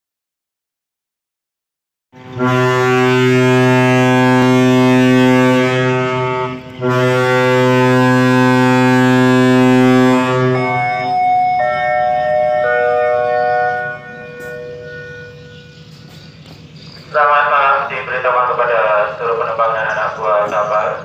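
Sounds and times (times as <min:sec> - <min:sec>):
deep ship's horn blasts: 0:02.2 - 0:16.2.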